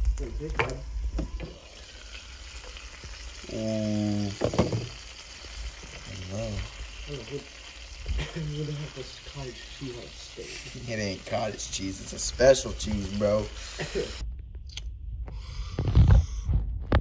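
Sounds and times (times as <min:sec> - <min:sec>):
meat sizzling in a frying pan: 0:00.8 - 0:14.2.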